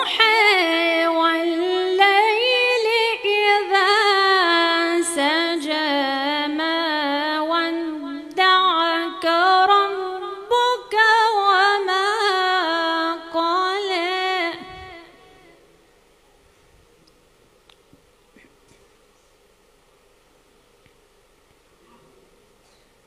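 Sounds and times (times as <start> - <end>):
woman reciting melodically: 0.0 - 15.6.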